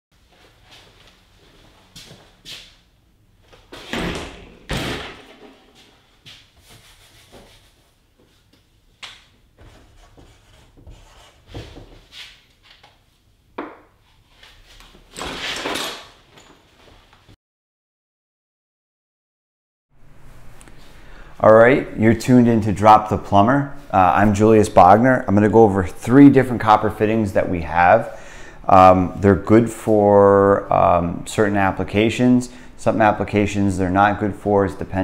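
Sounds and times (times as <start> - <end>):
rubbing on whiteboard: 6.6 - 8.0, 9.6 - 12.4
marker strokes on whiteboard: 9.6 - 11.5.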